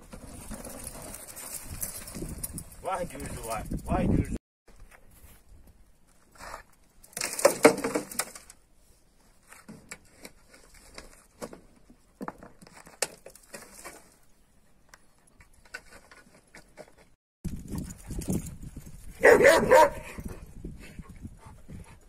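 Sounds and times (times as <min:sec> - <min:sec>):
grit rattling into wheelbarrow: 0:00.0 - 0:03.7.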